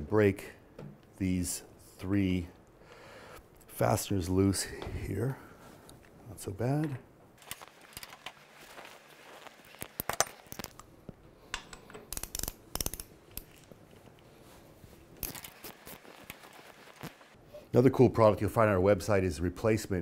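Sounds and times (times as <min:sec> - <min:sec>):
metal socket clinking: 0:11.5 - 0:13.8
hand ratchet clicking: 0:11.6 - 0:13.7.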